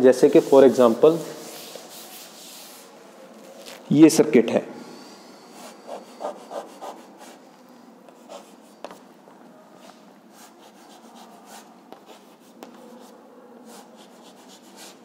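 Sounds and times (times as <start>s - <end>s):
chalk scratching on blackboard: 0.2s - 2.9s, 5.6s - 7.4s, 8.2s - 9.0s, 9.8s - 15.0s.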